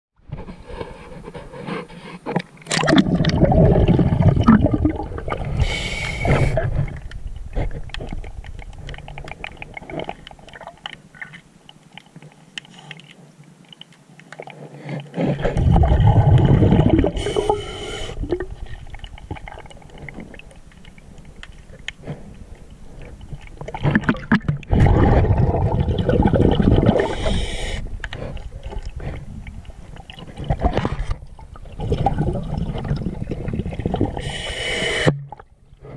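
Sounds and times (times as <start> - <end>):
water noise: 2.3 - 35.9
exhaled bubbles gurgling: 2.7 - 11.3, 15.2 - 21.8, 23.1 - 35.9
underwater diver breathing: 5.3 - 7.0, 16.6 - 18.9, 26.8 - 29.5, 33.2 - 35.9.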